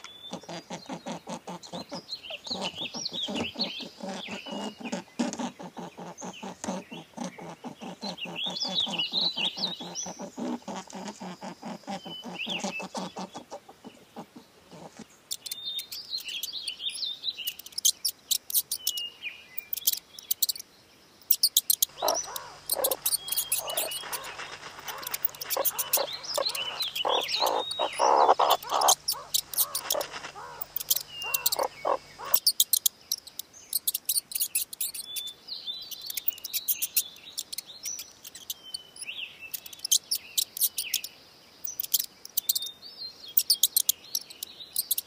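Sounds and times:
coypu chewing: 0.0s - 15.6s, 21.3s - 35.0s
small birds chirping: 0.0s - 45.0s
sharp high clicks: 21.3s - 35.1s.

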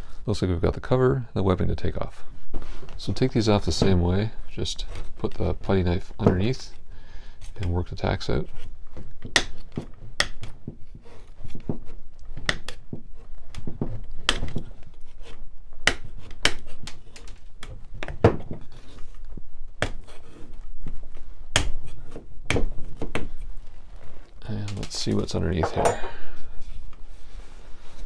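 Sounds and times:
putty knife prying tacks: 9.2s - 18.6s.

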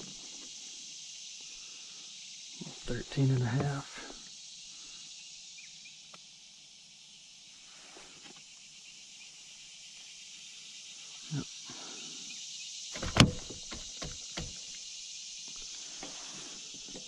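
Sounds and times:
high insect hiss: 0.0s - 17.0s
knocks on plastic kayak: 13.0s - 14.6s.

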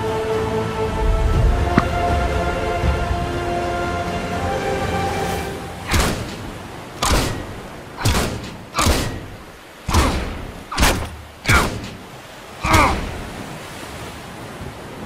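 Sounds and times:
heavy thuds: 1.3s - 3.0s, 5.9s - 13.2s.

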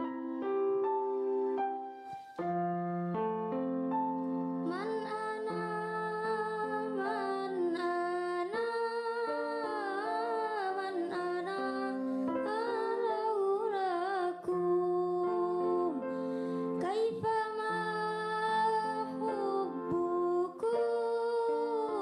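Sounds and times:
slow song with wordless vocals: 4.1s - 22.0s.

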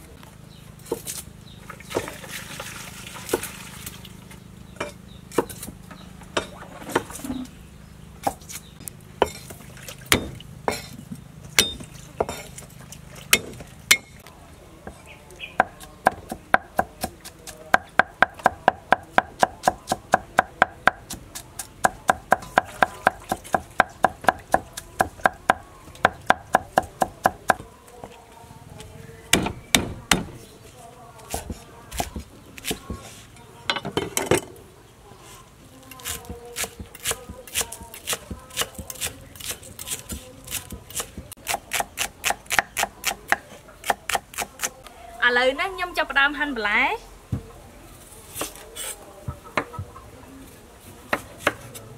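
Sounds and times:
cleaver chopping on wooden block: 10.1s - 10.8s.

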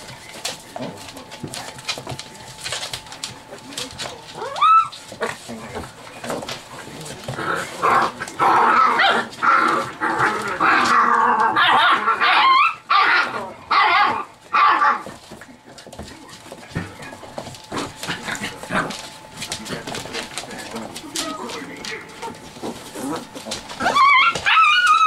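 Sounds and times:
light scuffling: 0.0s - 8.4s, 14.3s - 25.0s
puppies barking and yipping: 0.0s - 25.0s
puppies crying: 4.2s - 6.8s, 7.6s - 15.2s, 19.9s - 25.0s.

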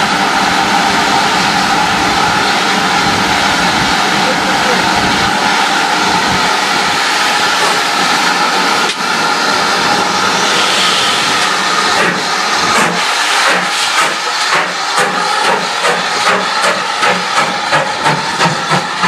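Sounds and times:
steam locomotive hissing: 0.0s - 19.0s
steam locomotive puffing: 10.0s - 19.0s
steam blowing from drain cocks: 10.2s - 19.0s.

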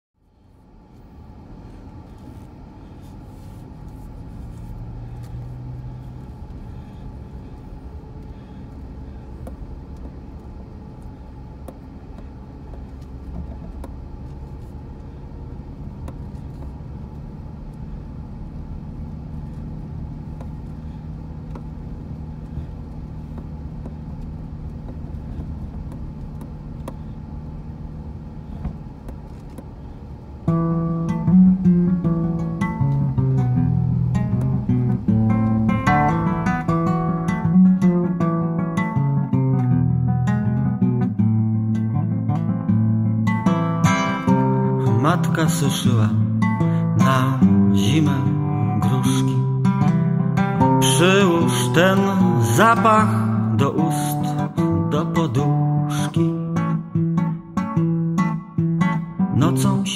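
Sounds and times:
car engine drone: 0.2s - 59.9s
acoustic guitar song: 29.2s - 59.9s.

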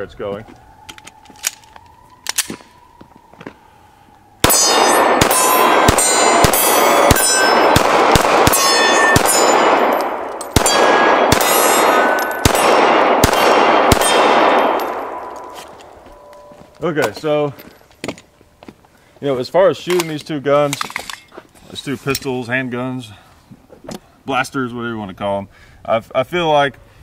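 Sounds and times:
steel targets ringing: 4.4s - 12.9s
pistol shots: 4.4s - 16.3s.

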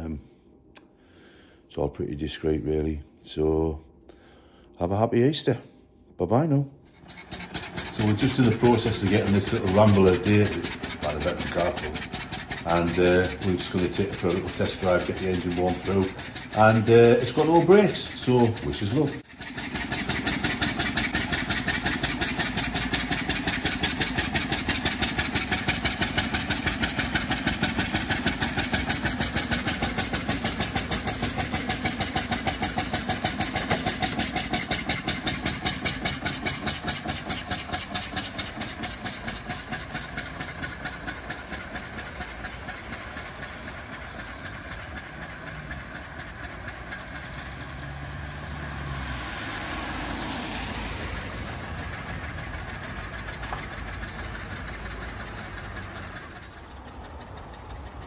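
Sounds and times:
car engine chugging: 6.9s - 58.0s
tyre hiss on wet road: 47.9s - 51.2s.

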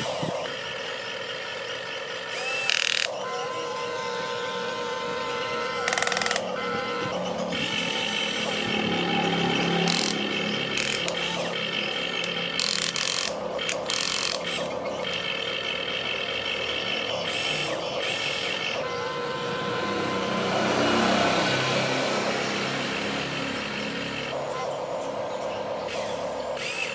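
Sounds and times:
toy excavator motors whining: 0.0s - 26.9s.

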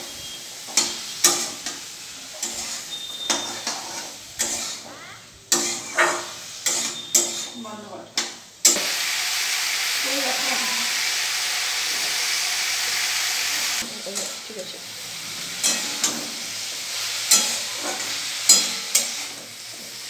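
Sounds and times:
frying sizzle: 0.0s - 20.0s
spatula scraping metal pan: 0.7s - 8.9s, 15.4s - 16.4s, 17.0s - 19.4s.

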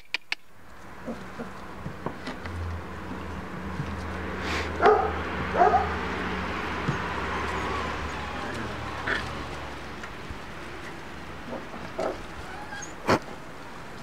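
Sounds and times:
puppies playing: 0.8s - 13.2s
puppy barking: 4.8s - 6.1s.

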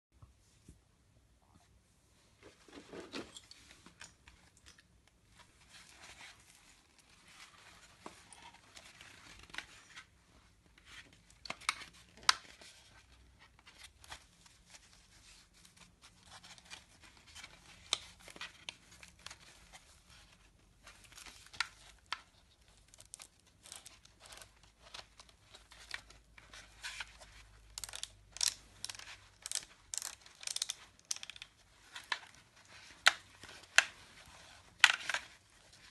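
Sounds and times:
hands handling plastic helmet: 2.2s - 35.9s
scratching and rustling: 2.3s - 4.5s.

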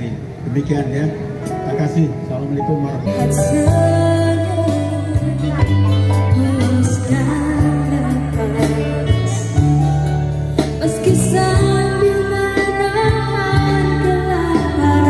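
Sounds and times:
band with guitars and percussion: 0.2s - 15.0s
woman singing: 3.1s - 9.8s, 10.8s - 15.0s.

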